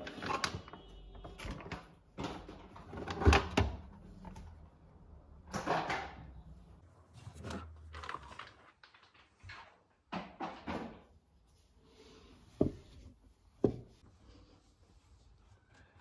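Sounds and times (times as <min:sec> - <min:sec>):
rustling packets: 0:07.1 - 0:09.6.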